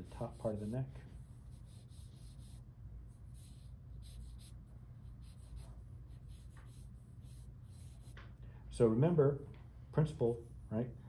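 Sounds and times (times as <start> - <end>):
charcoal drawing on paper: 0.0 - 8.2
low steady hum: 0.0 - 11.0.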